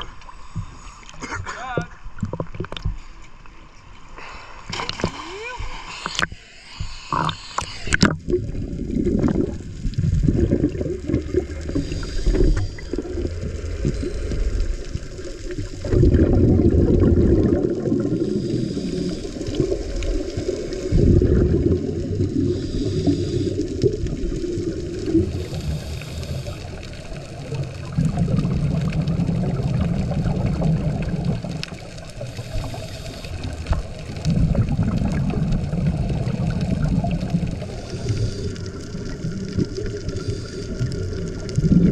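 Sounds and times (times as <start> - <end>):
underwater bubbles gurgling: 0.0 - 3.5, 4.2 - 41.9
regulator breathing hiss: 4.2 - 8.0, 11.7 - 13.1, 18.2 - 21.0, 22.4 - 23.9, 25.1 - 27.1, 32.2 - 34.2, 37.6 - 39.2, 40.0 - 41.1
water splashes: 4.2 - 41.9.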